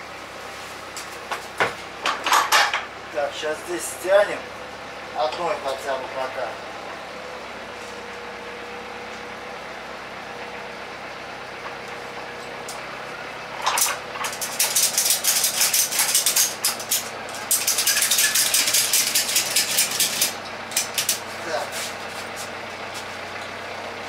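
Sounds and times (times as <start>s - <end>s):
ratchet strap clicking: 14.2s - 21.2s.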